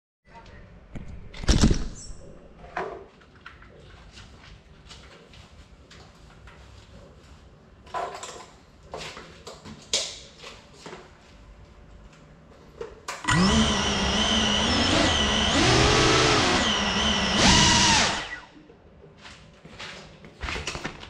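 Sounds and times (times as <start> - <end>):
drone motor whine: 13.3 - 18.5.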